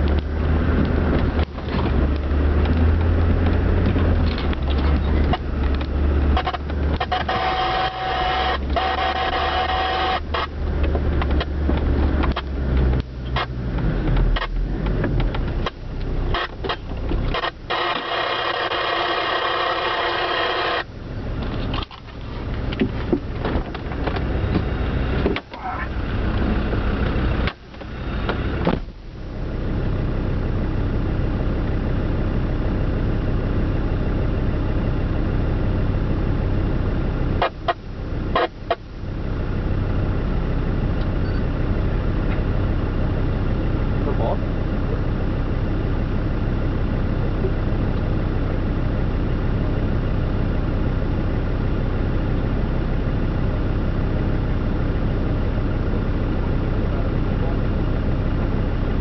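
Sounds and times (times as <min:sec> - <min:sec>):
off-road vehicle engine running: 0:00.0 - 0:59.0
knocks and rattles over bumps: 0:21.4 - 0:25.6.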